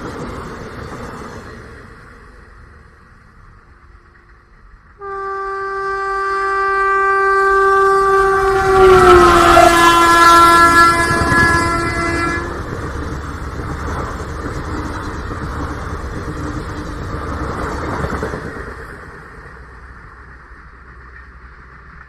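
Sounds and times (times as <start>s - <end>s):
train rumbling: 0.0s - 22.0s
train horn blast: 5.0s - 12.8s.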